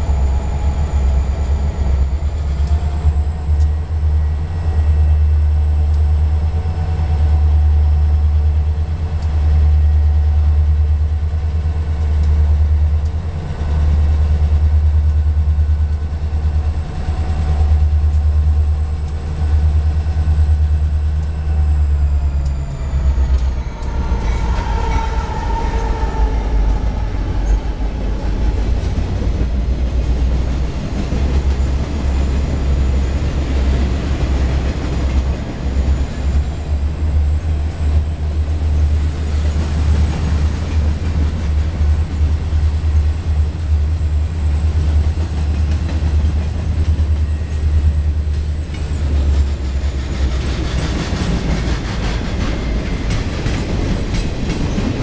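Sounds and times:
diesel locomotive drone: 0.0s - 55.0s
train wheel clatter: 11.3s - 55.0s.

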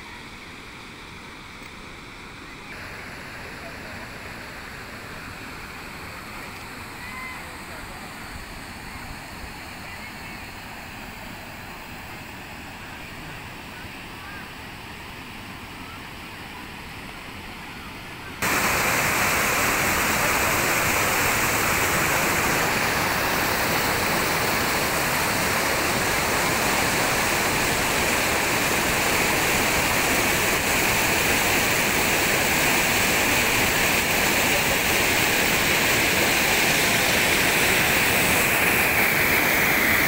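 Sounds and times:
water rushing over rocks: 18.4s - 40.0s.

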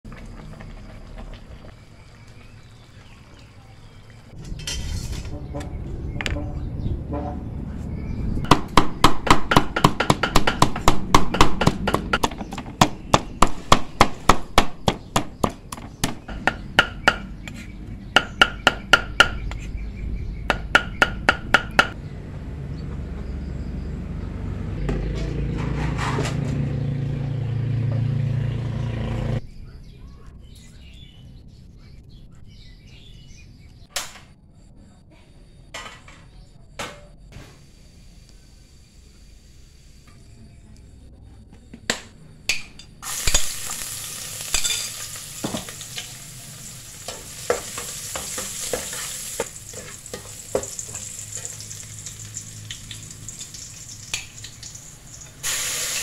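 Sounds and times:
pestle pounding in wooden mortar: 8.5s - 17.5s, 18.1s - 19.6s, 20.5s - 22.0s.

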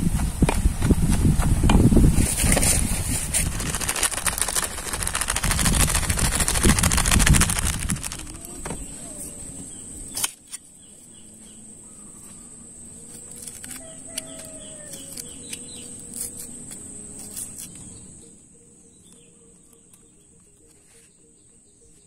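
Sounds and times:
high insect whine: 0.0s - 20.7s
knife scraping tuber skin: 13.2s - 17.9s
rooster crowing: 13.6s - 15.4s.

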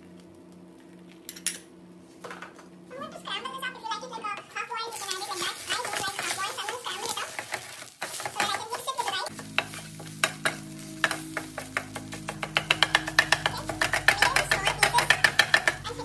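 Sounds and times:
eggs sizzling: 4.0s - 16.0s
spatula scraping frying pan: 4.4s - 16.0s.

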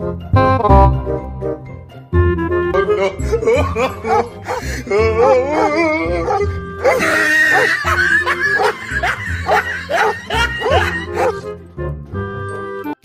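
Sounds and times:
dogs barking and yelping: 3.8s - 11.5s.

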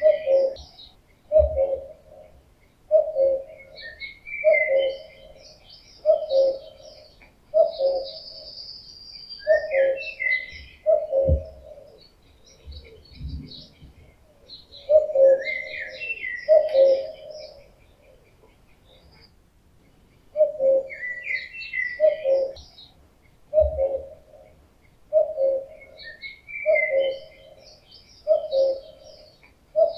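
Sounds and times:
cuckoo calling: 0.0s - 29.9s
songbirds chirping: 0.0s - 29.9s
low thump: 11.2s - 11.6s.

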